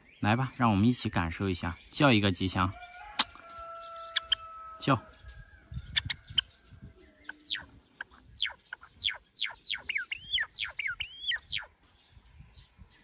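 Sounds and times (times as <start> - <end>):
sparrow singing quick chirps: 5.2 - 13.0.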